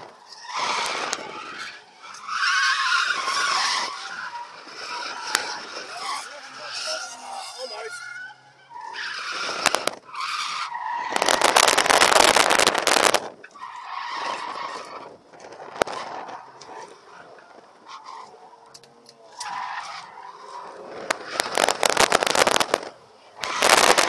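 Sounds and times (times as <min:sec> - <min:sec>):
tyres squealing: 0:00.3 - 0:11.9.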